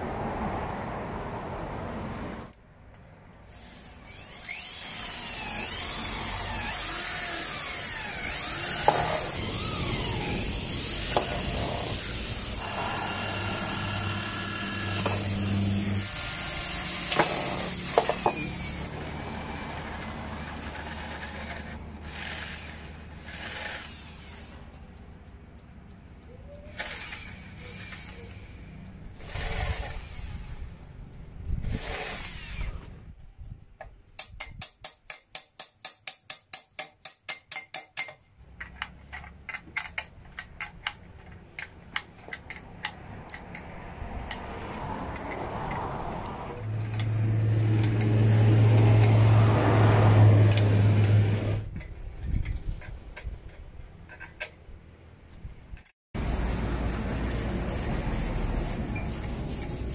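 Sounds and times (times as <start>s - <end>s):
power drill drilling wood: 3.6s - 24.5s, 26.7s - 28.6s, 29.2s - 30.5s, 31.7s - 32.9s
humming whir: 4.1s - 16.2s.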